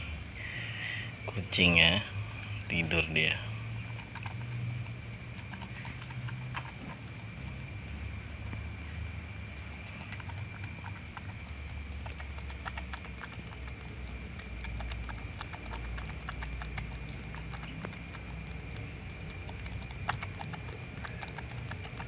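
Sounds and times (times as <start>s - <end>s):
baby monkey suckling bottle: 3.6s - 7.6s, 8.4s - 22.0s.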